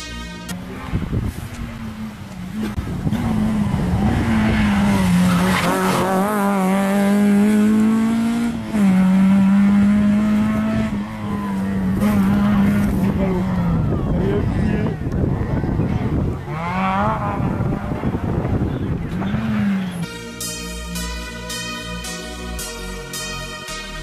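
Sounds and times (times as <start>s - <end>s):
rally car engine at high revs: 0.7s - 20.0s.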